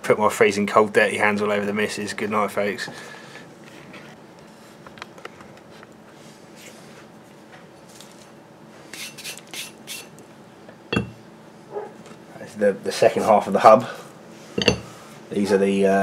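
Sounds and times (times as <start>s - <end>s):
steel plate knocking on bench: 11.0s - 11.2s.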